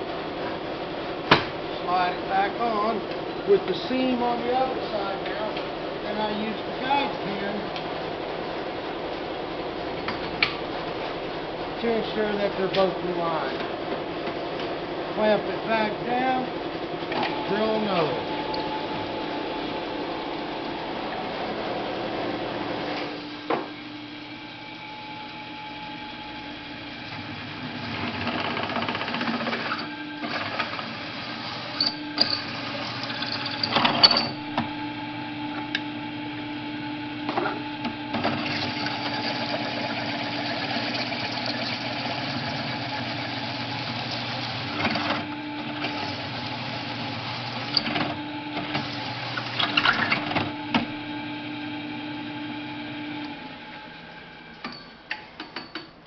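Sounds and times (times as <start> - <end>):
drill press boring steel pipe: 29.5 - 34.4.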